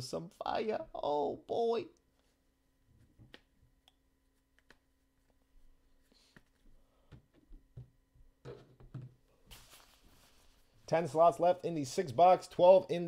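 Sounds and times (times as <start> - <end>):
faint steady hum: 0.0 - 13.0
faint clicks and taps: 3.1 - 5.4.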